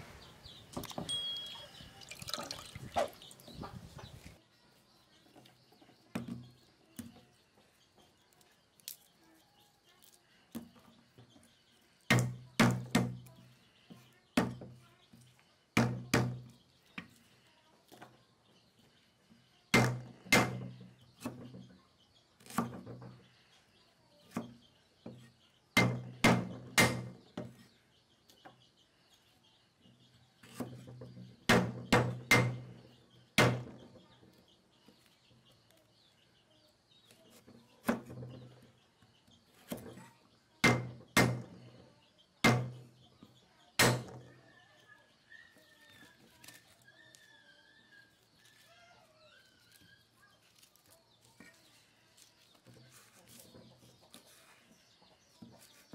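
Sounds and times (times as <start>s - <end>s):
faint high chirring: 1.0s - 2.0s
cleaver chopping on wooden board: 19.8s - 21.3s, 25.8s - 27.2s, 31.5s - 32.7s, 33.4s - 33.7s, 40.6s - 41.5s, 42.4s - 42.8s.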